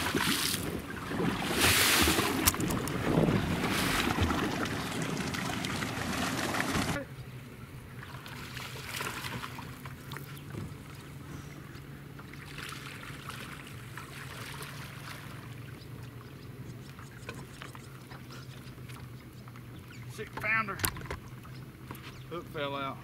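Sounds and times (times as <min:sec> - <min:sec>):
fish splashing in water: 0:00.0 - 0:07.0, 0:08.0 - 0:11.0, 0:12.2 - 0:15.7
steady low hum: 0:00.0 - 0:23.0.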